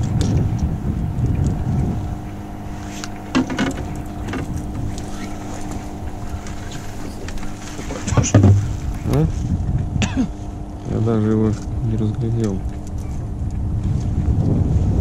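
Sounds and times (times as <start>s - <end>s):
outboard motor running: 0.0s - 15.0s
water rumble: 0.0s - 15.0s
wind: 0.0s - 15.0s
short knocks: 3.3s - 4.9s, 8.1s - 8.8s.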